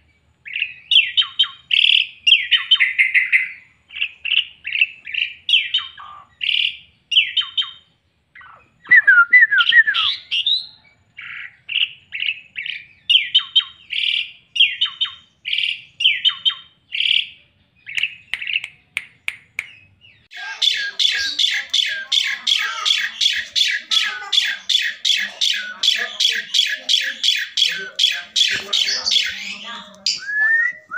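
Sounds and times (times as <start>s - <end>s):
songbirds chirping and whistling: 0.0s - 30.9s
starling harsh repeated chatter: 20.3s - 30.9s.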